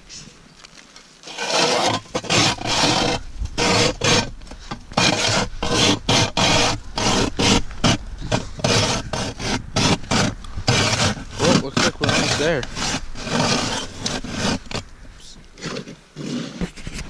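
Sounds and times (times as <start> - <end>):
ice auger scraping through ice: 1.2 - 17.0.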